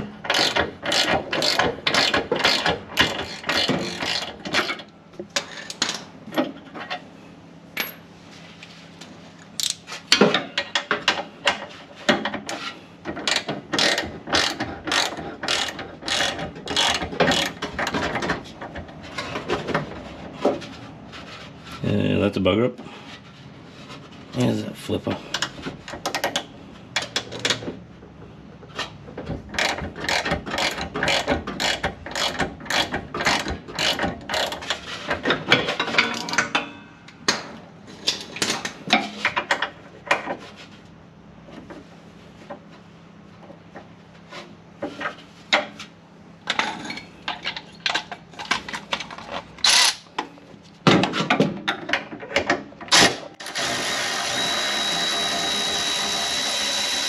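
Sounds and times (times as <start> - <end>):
electric ratchet whine: 53.4 - 57.0.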